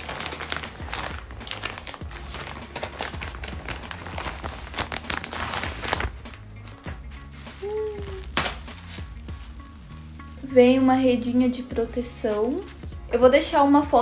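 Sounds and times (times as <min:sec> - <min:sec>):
packaging crinkling: 0:00.0 - 0:10.4.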